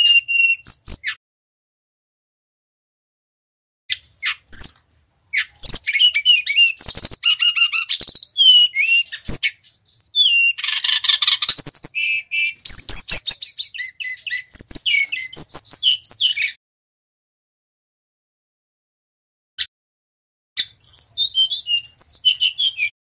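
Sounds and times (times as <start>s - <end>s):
bird singing varied song: 0.0s - 1.2s, 3.9s - 16.6s, 20.6s - 23.0s.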